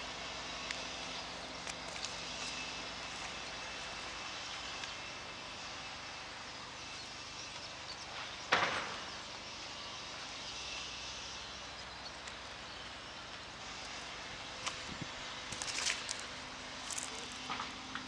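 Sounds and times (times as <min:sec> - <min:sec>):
outdoor background hiss: 0:00.0 - 0:18.0
soil scrape: 0:14.6 - 0:17.6.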